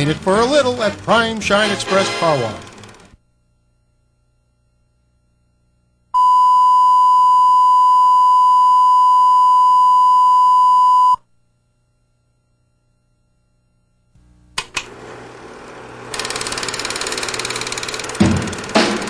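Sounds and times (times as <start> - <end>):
steady test tone beep: 6.2 - 11.2.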